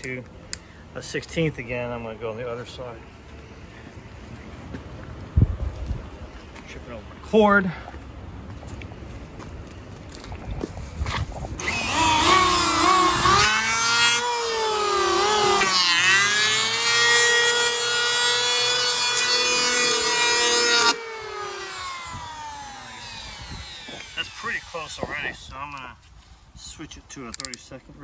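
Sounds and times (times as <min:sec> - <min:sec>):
electric hand planer cutting wood: 0:11.6 - 0:25.2
motor winding down whine: 0:11.6 - 0:25.4.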